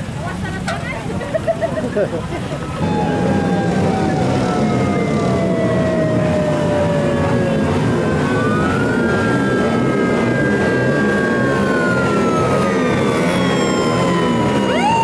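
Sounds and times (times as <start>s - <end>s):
motorcycle engines rumbling: 0.0s - 15.0s
motorcycle sirens wailing: 2.5s - 15.0s.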